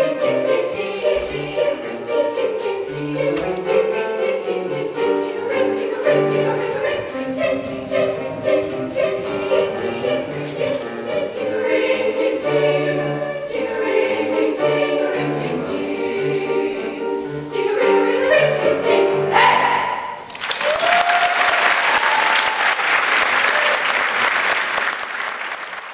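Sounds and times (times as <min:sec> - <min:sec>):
women's choir with piano: 0:00.0 - 0:20.3
audience applause: 0:20.2 - 0:25.9.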